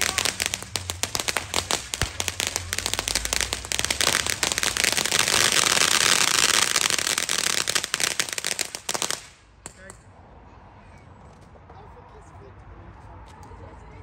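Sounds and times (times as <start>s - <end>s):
fireworks crackling: 0.0s - 9.9s.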